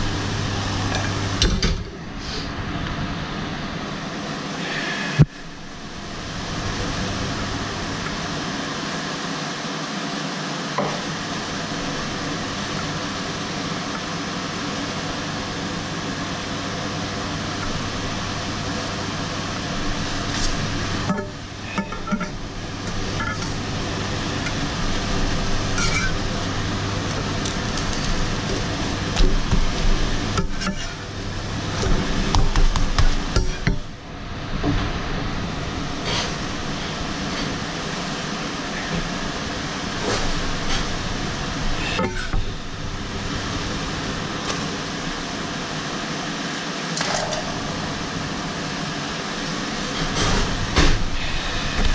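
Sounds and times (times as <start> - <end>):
metal spatula scraping and tapping pan: 25.8 - 26.2
crepe frying with hiss: 35.4 - 44.3.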